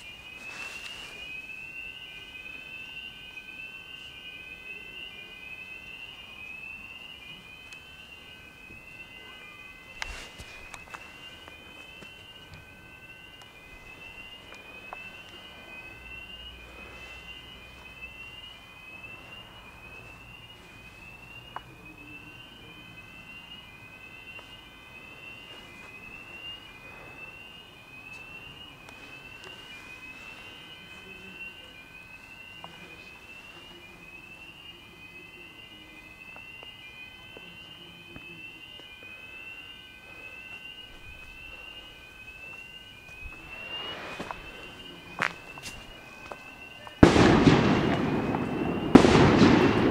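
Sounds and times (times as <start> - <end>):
rising electronic alarm sweep: 0.0 - 49.9
steady alarm tones: 0.0 - 49.9.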